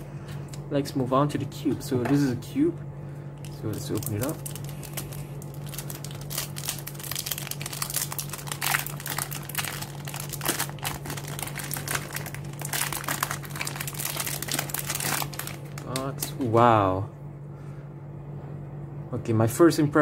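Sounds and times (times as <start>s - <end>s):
plastic wrap crinkling: 3.4s - 16.4s.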